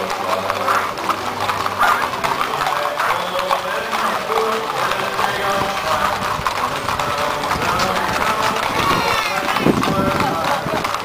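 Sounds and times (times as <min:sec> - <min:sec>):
hooves clip-clopping on asphalt: 0:00.0 - 0:11.0
onlookers murmuring: 0:00.0 - 0:11.0.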